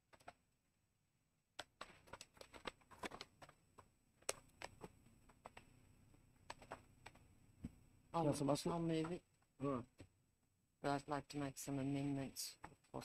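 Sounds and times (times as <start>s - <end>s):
soft clicks and paper rustling: 1.6s - 7.8s.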